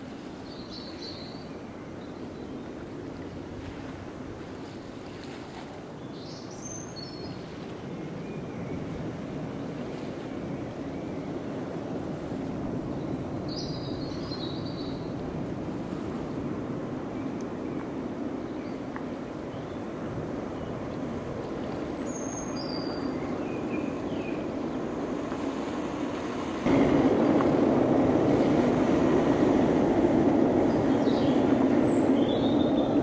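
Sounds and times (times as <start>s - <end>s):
train rumbling over rail bridge: 22.7s - 33.0s.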